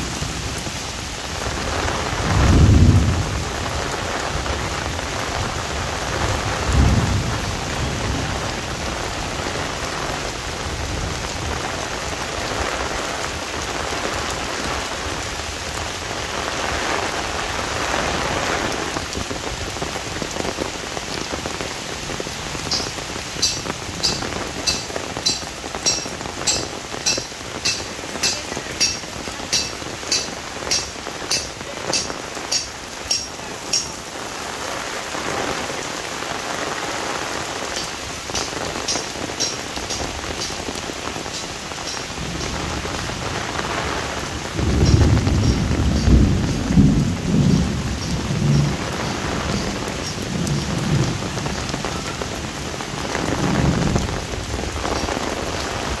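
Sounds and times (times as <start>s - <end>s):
heavy rain on an umbrella: 0.0s - 56.0s
low rumble of thunder: 1.6s - 12.6s, 42.2s - 54.8s.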